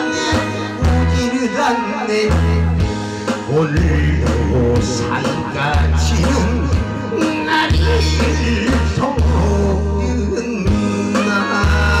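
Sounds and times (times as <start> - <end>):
man singing into microphone: 0.0 - 12.0
recorded backing track: 0.0 - 12.0.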